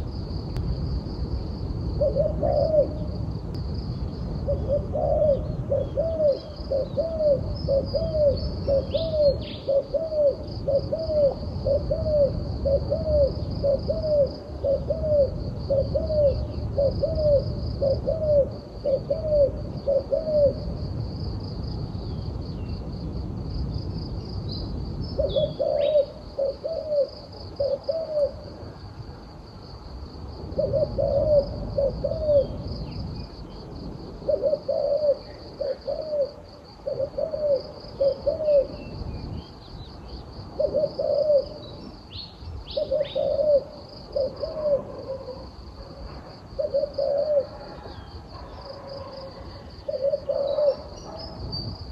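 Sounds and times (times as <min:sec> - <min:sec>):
dove cooing: 0:02.0 - 0:03.2, 0:04.4 - 0:20.7, 0:25.2 - 0:28.9, 0:30.5 - 0:33.0, 0:34.2 - 0:39.0, 0:40.5 - 0:42.0, 0:42.7 - 0:51.8.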